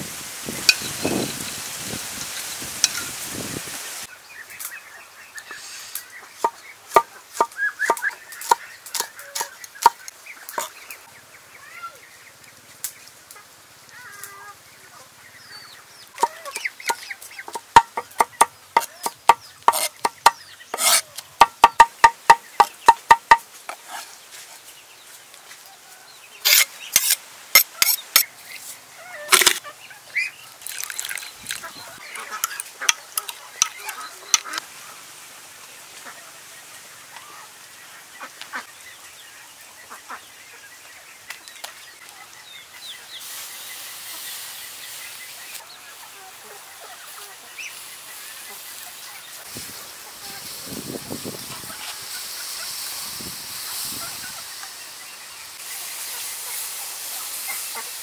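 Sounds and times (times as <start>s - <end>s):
chickens calling: 4.0s - 12.6s, 13.3s - 24.2s, 26.4s - 35.1s, 39.5s - 58.0s
cleaver chopping on wooden board: 17.6s - 23.4s.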